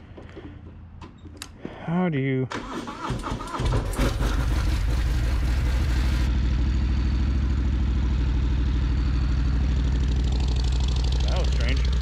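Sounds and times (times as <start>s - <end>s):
motorcycle engine idling: 5.8s - 12.0s.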